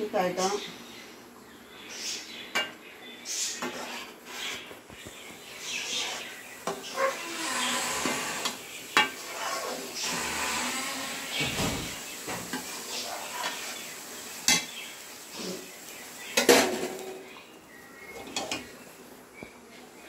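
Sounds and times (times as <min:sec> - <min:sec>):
pots and pans clattering: 0:07.9 - 0:13.7, 0:14.4 - 0:14.8, 0:16.3 - 0:17.3, 0:18.1 - 0:18.7.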